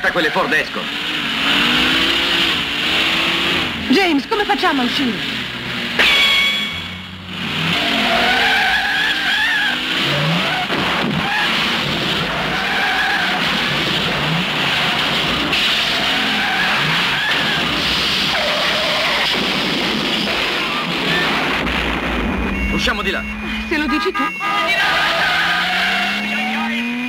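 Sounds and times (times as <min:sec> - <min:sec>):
car engines revving: 0:00.0 - 0:27.0
tyres squealing: 0:06.8 - 0:19.4, 0:22.4 - 0:27.0.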